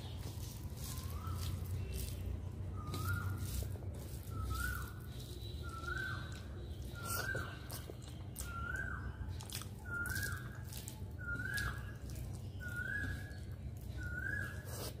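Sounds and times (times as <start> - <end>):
fingers squishing wet rice: 0.0 - 15.0
rising whistled call: 2.8 - 6.3, 11.2 - 12.0, 12.6 - 14.9.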